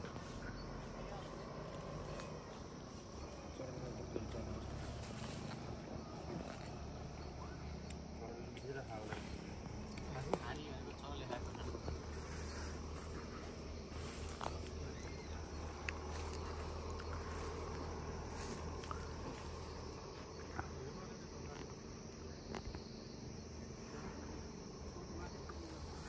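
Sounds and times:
steady low rumble: 0.0s - 23.7s
insects buzzing and chirping: 0.0s - 26.0s.

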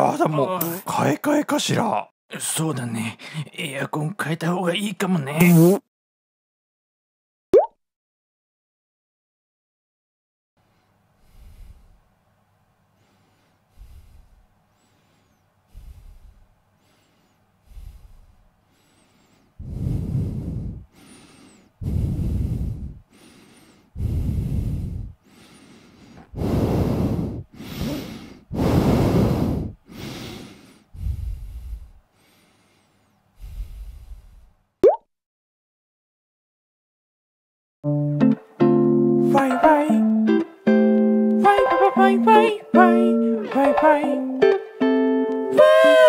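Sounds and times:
person breathing heavily: 10.7s - 12.1s, 13.0s - 34.6s.

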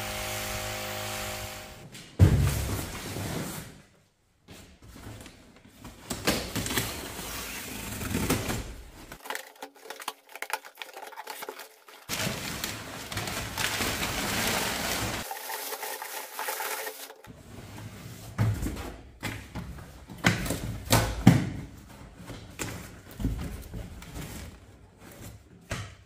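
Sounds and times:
packing paper rustling: 6.5s - 17.3s.

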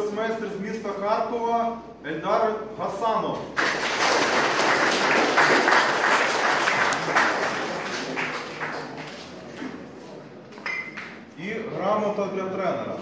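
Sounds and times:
small audience applauding: 3.5s - 9.8s.

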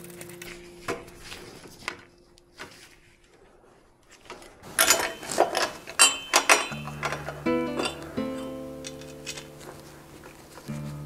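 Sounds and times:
tools clinking on metal: 4.7s - 10.7s.

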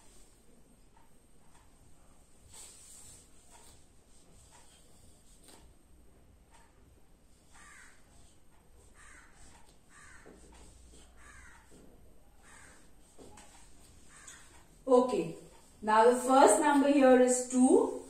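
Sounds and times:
marker squeaking on whiteboard: 7.3s - 14.8s.

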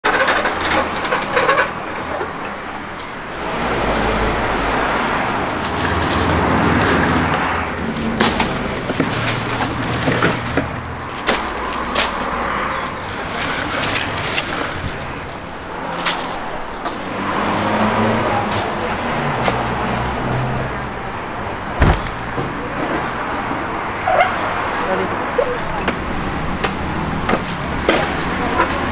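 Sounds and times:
hand cart clattering: 0.0s - 3.6s, 5.3s - 20.0s, 24.1s - 28.9s
road traffic passing: 0.0s - 28.9s
ice crunching in a cooler: 5.4s - 19.6s.

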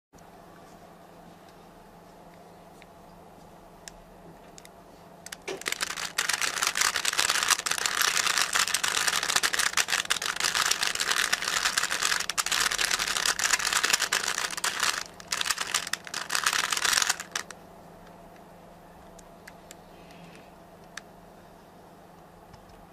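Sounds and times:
puzzle cube plastic clicks: 5.3s - 17.5s.

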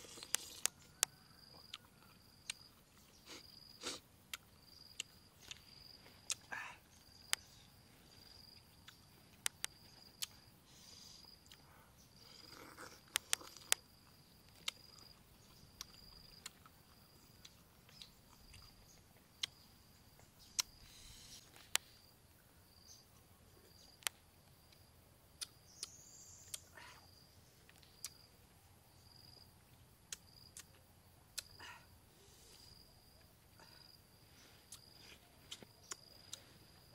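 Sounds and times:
insect trilling: 20.4s - 22.1s
mouth smacks while eating: 34.7s - 36.5s.

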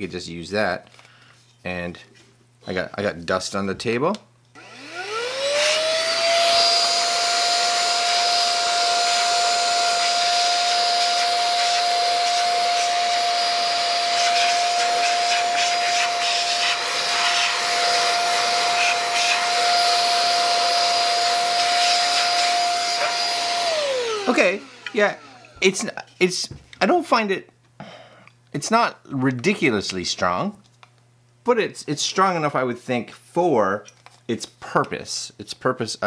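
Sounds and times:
vacuum cleaner motor whine: 4.6s - 25.7s.

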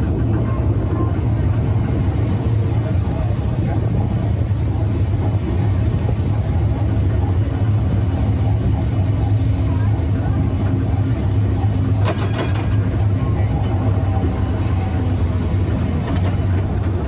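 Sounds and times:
tram rumbling on rails: 0.0s - 17.0s
rattling clink: 11.9s - 13.8s.

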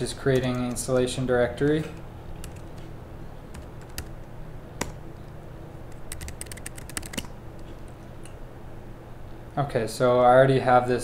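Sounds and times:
low steady hum: 0.0s - 11.0s
keyboard keystrokes: 0.3s - 2.9s, 3.5s - 5.0s, 5.9s - 7.3s.

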